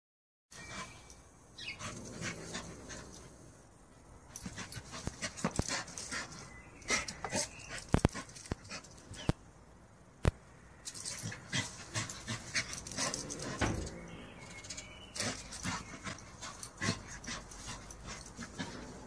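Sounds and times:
dog panting: 11.1s - 13.7s, 15.2s - 19.0s.

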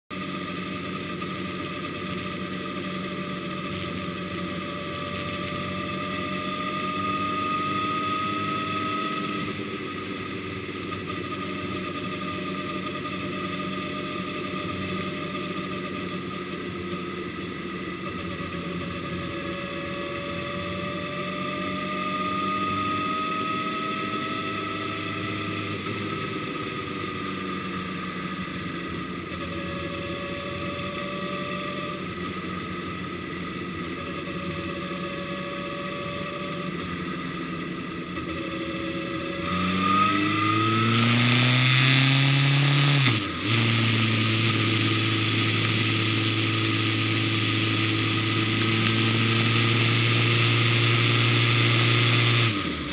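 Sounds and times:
vehicle engine running: 0.0s - 18.2s, 40.4s - 52.9s.

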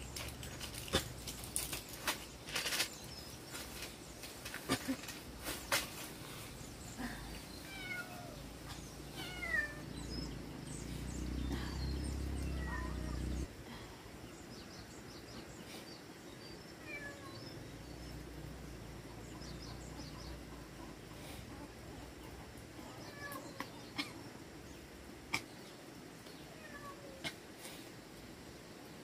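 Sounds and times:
plastic bag crinkling: 0.0s - 5.6s
cat meowing: 9.1s - 9.8s, 12.4s - 13.5s.

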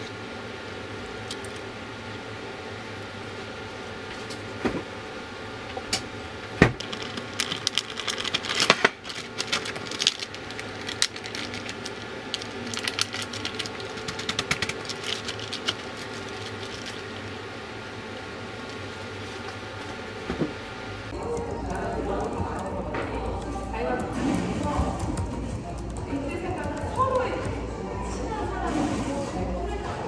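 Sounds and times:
plastic bag crinkling: 6.8s - 17.3s.

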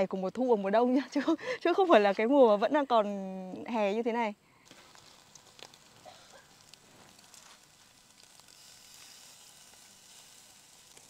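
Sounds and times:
meat sizzling on a grill: 4.6s - 11.0s.

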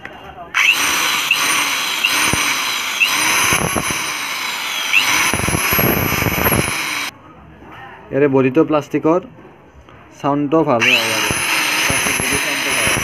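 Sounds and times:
high-pitched electric motor whine: 0.6s - 7.1s, 10.8s - 13.0s.

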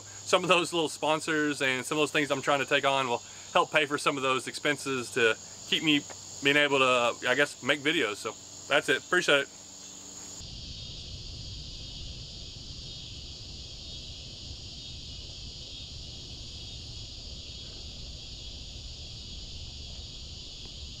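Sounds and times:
crickets and insects trilling: 0.0s - 21.0s.

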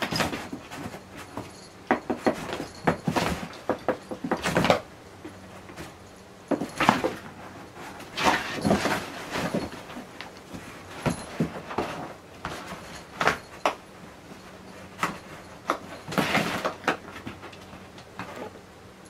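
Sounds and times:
cardboard rustling and bumping: 0.0s - 4.8s, 8.0s - 13.7s.

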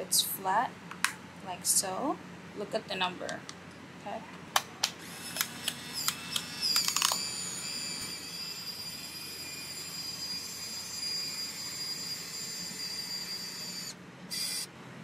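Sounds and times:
camera film motor whirring: 5.0s - 14.7s.

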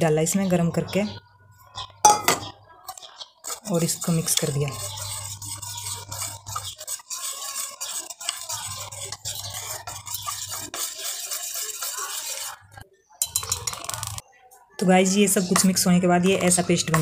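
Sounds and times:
whisk beating batter in steel bowl: 2.8s - 14.2s, 15.5s - 17.0s.

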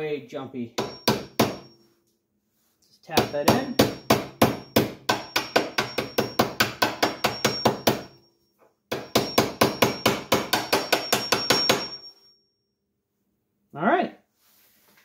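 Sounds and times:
faint high metallic ring: 0.8s - 2.1s, 3.3s - 10.1s, 10.9s - 12.8s.

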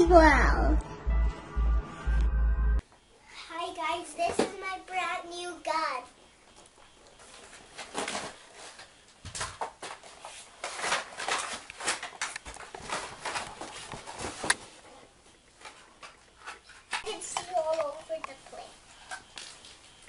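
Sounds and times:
cardboard and plastic rustling: 6.5s - 20.0s.

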